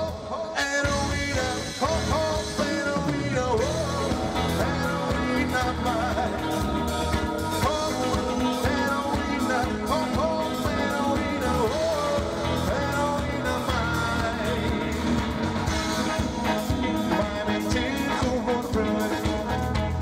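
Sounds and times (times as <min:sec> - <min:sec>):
lead singer singing: 0:00.0 - 0:20.0
live band playing: 0:00.0 - 0:20.0.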